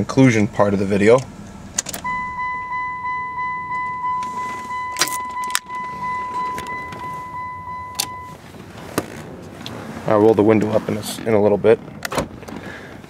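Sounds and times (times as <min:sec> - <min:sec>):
pulsing warning chime: 0:02.0 - 0:08.4.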